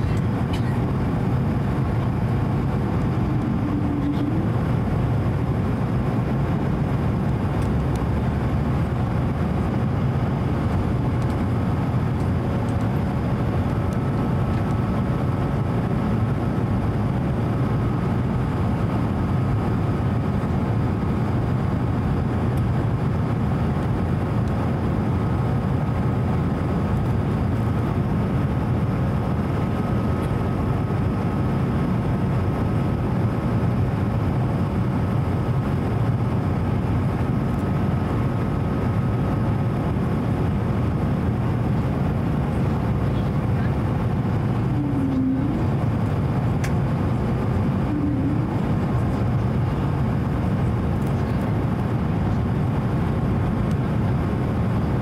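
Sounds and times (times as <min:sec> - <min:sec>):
airliner cabin rumble and hiss: 0:00.0 - 0:55.0
faint steady hum: 0:00.0 - 0:55.0
faint high whine: 0:02.6 - 0:04.8, 0:43.1 - 0:49.6.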